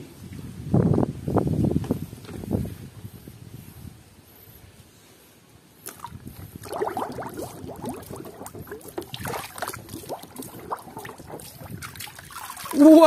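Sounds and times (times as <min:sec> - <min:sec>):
water splashing in plastic tub: 0:05.8 - 0:13.0.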